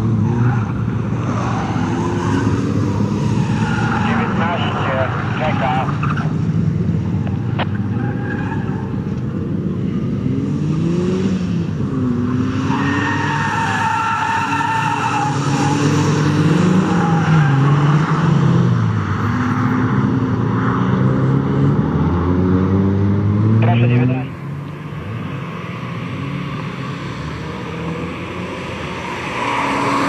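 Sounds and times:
tyres squealing: 12.7 - 15.7.

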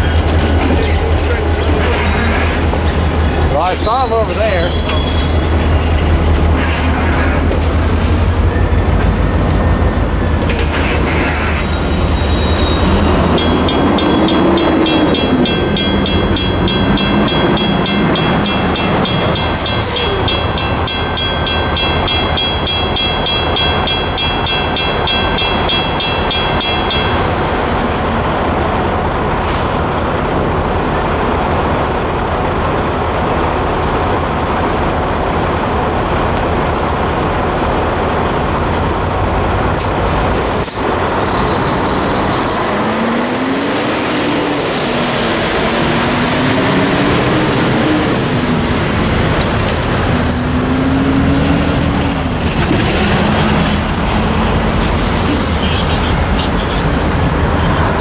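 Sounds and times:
traffic rumble: 0.8 - 58.0.

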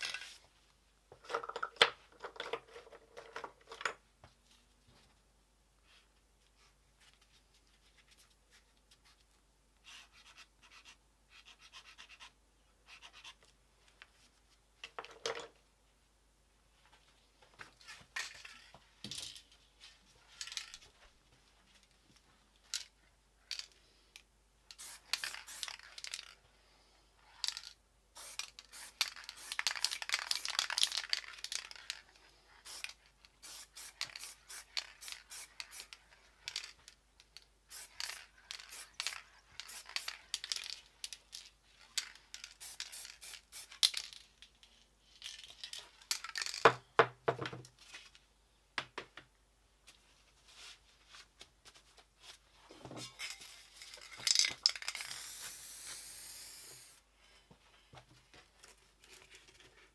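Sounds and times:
spray paint hissing: 24.8 - 25.8, 28.2 - 31.2, 32.6 - 36.0, 37.7 - 40.2, 42.6 - 43.8, 54.8 - 57.0.

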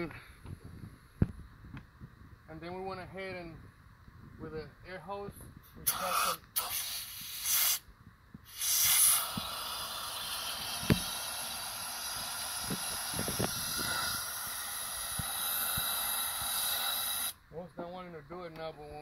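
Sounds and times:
compressed air hissing: 5.6 - 17.4
water spraying: 5.8 - 7.8, 8.5 - 17.4.

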